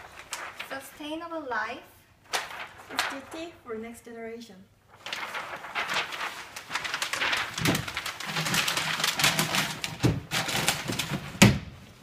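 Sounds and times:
paper crumpling: 0:00.0 - 0:00.8, 0:02.3 - 0:03.6, 0:04.9 - 0:11.4.

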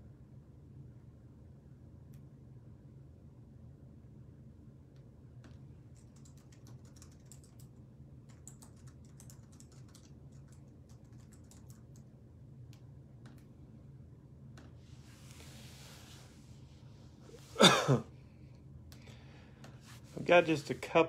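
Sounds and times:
low steady hum: 0:00.0 - 0:21.0
faint keyboard typing: 0:04.9 - 0:13.6.

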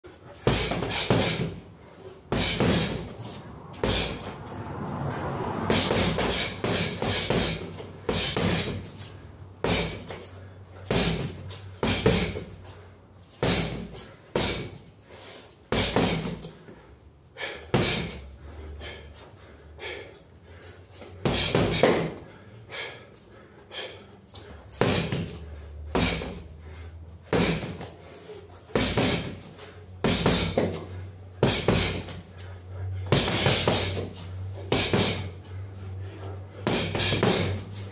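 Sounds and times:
gloves punching heavy bag: 0:00.3 - 0:01.7, 0:02.3 - 0:04.3, 0:05.7 - 0:09.0, 0:09.6 - 0:10.2, 0:10.8 - 0:12.5, 0:13.4 - 0:14.9, 0:15.7 - 0:16.5, 0:17.4 - 0:18.2, 0:21.2 - 0:22.2, 0:24.7 - 0:26.5, 0:27.2 - 0:27.9, 0:28.7 - 0:32.3, 0:33.1 - 0:35.4, 0:36.6 - 0:37.7.

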